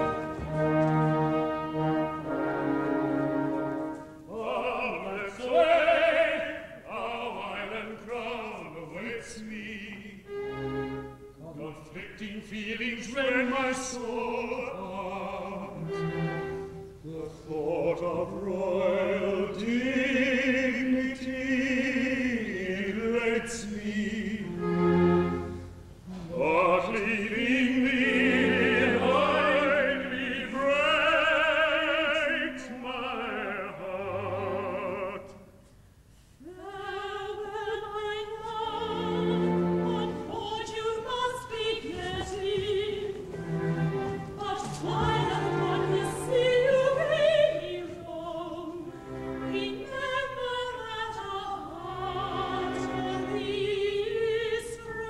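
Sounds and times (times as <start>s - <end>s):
orchestra playing: 0.0s - 4.2s, 10.3s - 11.4s, 15.3s - 17.0s, 24.3s - 27.2s, 38.6s - 40.8s, 43.2s - 47.8s, 48.6s - 50.1s
operetta singing: 36.6s - 55.0s.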